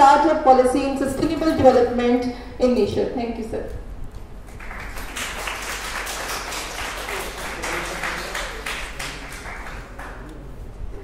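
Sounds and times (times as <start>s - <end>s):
audience applauding: 4.5s - 10.5s.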